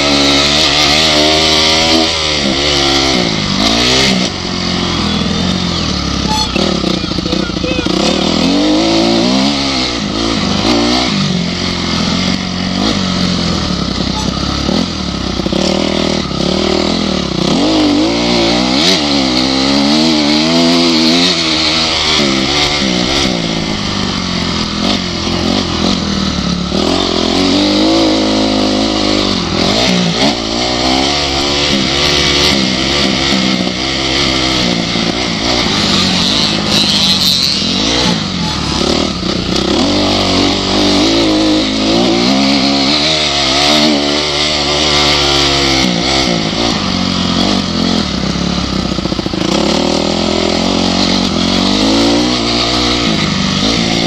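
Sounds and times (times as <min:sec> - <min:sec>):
dirt bike engine revving: 0:00.0 - 0:54.0.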